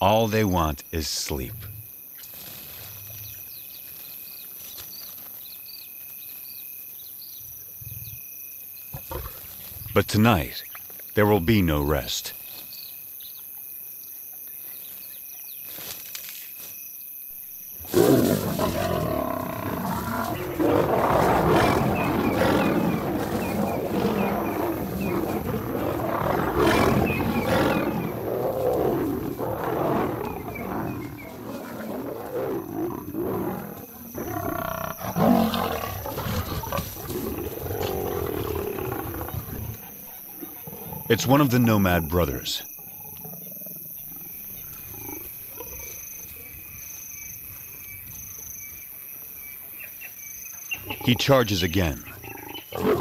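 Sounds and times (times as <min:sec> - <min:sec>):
crickets chirping: 0:00.0 - 0:53.0
lions growling and roaring: 0:08.9 - 0:10.6, 0:17.8 - 0:46.7, 0:50.8 - 0:53.0.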